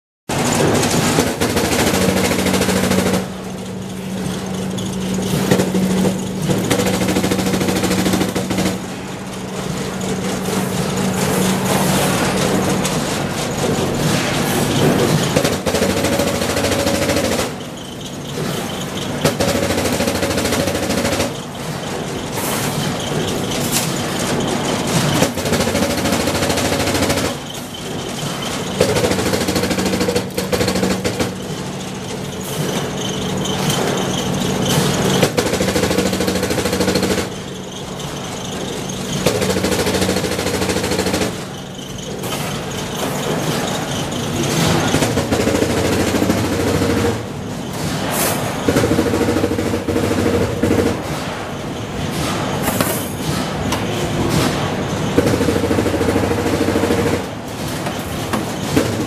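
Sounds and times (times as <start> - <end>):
factory machinery humming: 0.3 - 59.0
wire racks rattling: 0.3 - 59.0.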